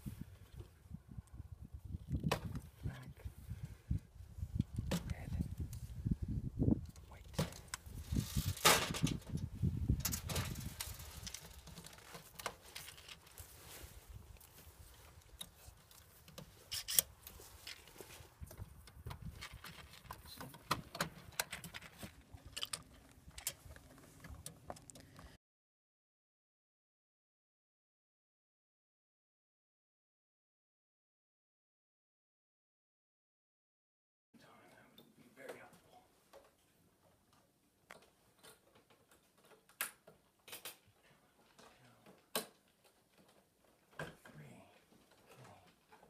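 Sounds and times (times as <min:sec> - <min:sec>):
rustling against microphone: 0:04.3 - 0:25.4
wires being handled: 0:10.0 - 0:18.7.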